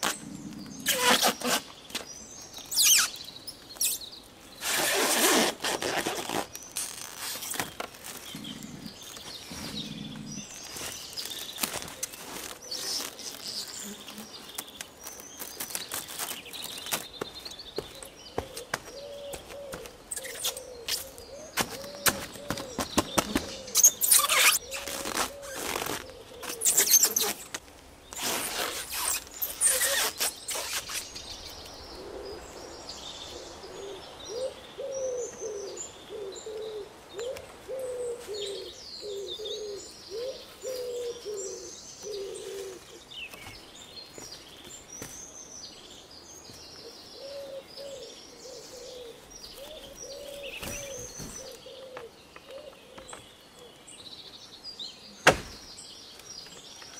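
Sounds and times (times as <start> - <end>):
small birds chirping: 0.0 - 56.9
bird cooing: 8.3 - 10.6, 18.4 - 24.0, 24.6 - 26.7, 31.9 - 32.5, 33.3 - 43.0, 47.2 - 53.2
plastic wrap crinkling: 14.7 - 17.1.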